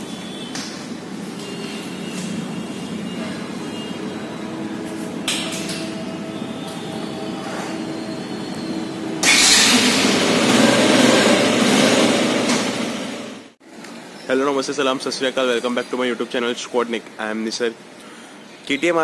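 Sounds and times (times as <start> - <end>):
steady mechanical hum: 0.0 - 19.0
loud rushing mechanical noise: 1.0 - 13.6.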